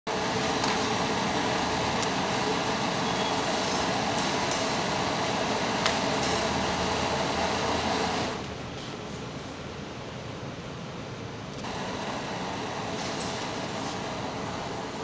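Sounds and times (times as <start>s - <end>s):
gas burner flame rushing: 11.6s - 15.0s.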